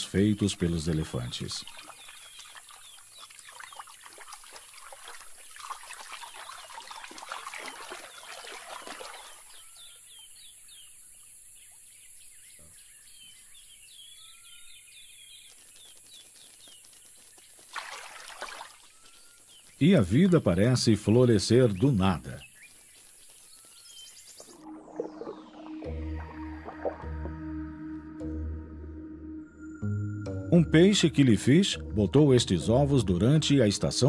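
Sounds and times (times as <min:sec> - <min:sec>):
birds calling and chirping: 0:00.0 - 0:17.7, 0:18.3 - 0:27.0.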